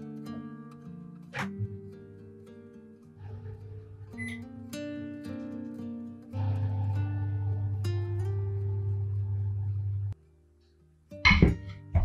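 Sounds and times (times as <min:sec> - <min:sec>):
acoustic guitar music: 0:00.0 - 0:12.0
oven humming: 0:06.4 - 0:10.2.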